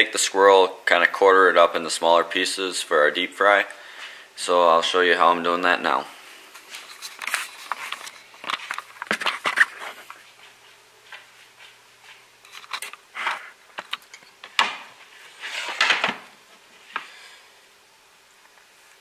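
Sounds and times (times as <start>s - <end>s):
faint steady hum: 0.0s - 19.0s
handling knocks and clicks: 12.4s - 14.9s.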